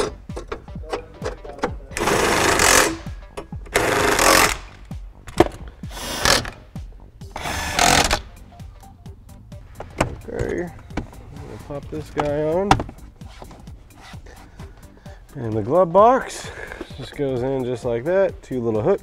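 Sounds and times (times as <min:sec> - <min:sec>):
background music with steady beat: 0:00.0 - 0:19.0
cordless drill driving screws: 0:02.0 - 0:03.0, 0:03.7 - 0:04.7, 0:05.9 - 0:06.6, 0:07.4 - 0:08.3.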